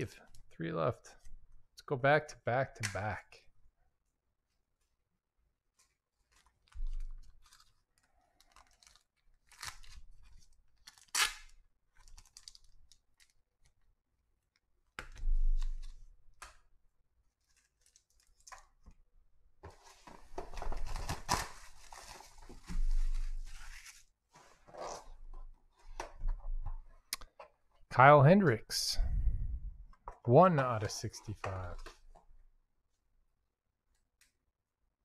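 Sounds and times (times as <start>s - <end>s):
cards and boxes rustling: 5.8s - 11.1s, 19.6s - 25.2s
plastic shrink wrap tearing: 6.2s - 10.2s, 10.8s - 13.4s.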